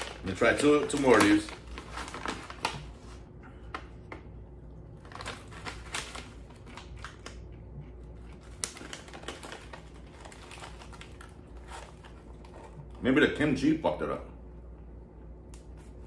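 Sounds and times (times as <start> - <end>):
plastic pouch crinkling: 0.0 - 3.2, 5.0 - 7.5, 8.1 - 12.7.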